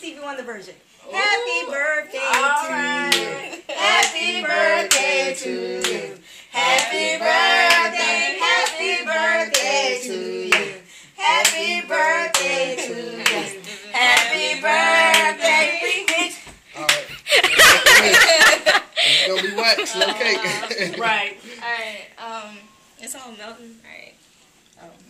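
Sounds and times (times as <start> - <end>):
women singing: 1.1 - 16.5
hands clapping: 13.2 - 13.4, 16.1 - 17.2.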